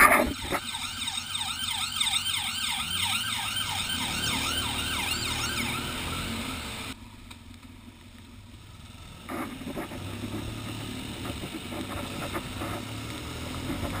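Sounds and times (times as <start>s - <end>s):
ambulance siren wailing: 0.0s - 7.0s
motorcycle engine: 0.0s - 14.0s
road noise: 0.0s - 14.0s.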